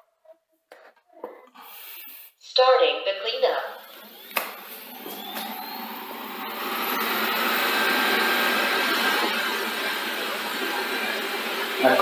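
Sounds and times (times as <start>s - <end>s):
robot vacuum fan whine: 3.7s - 12.0s.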